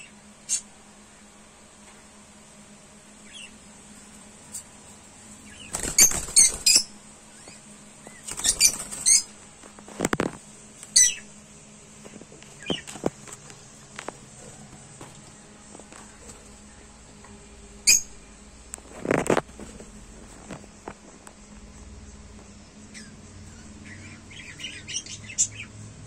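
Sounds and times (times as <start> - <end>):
lovebirds chirping: 5.4 - 9.4, 10.8 - 11.4, 12.4 - 13.1, 17.8 - 18.3, 22.6 - 25.8.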